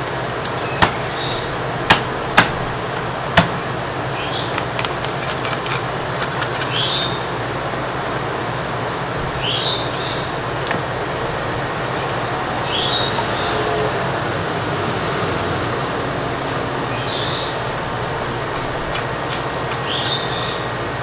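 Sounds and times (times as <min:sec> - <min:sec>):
steady hum: 0:00.0 - 0:21.0
cleaver chopping on wooden board: 0:00.8 - 0:01.0, 0:01.9 - 0:02.6, 0:03.4 - 0:03.7
blade cracking on bone: 0:04.6 - 0:06.8, 0:18.5 - 0:20.2.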